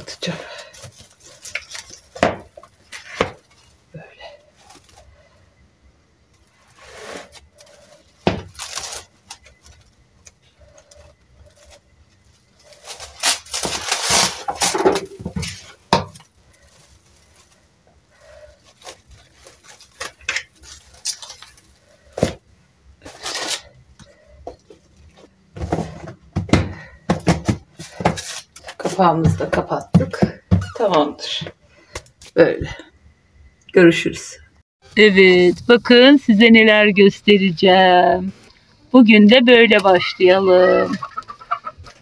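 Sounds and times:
cling film crinkling: 7.2s - 22.0s.

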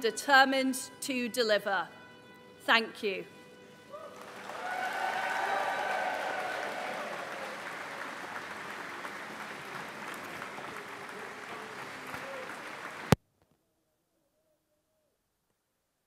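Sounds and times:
crowd applause: 3.9s - 13.2s.

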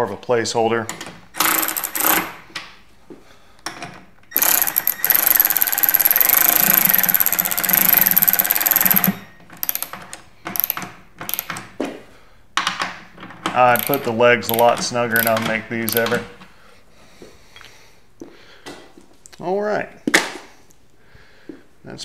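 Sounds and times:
cordless power driver running: 4.4s - 9.8s.

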